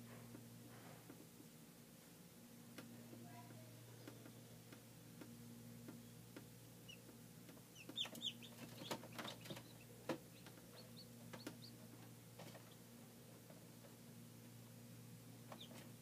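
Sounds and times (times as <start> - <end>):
low steady hum: 0.0 - 16.0
chicks peeping: 6.8 - 12.8, 15.4 - 15.9.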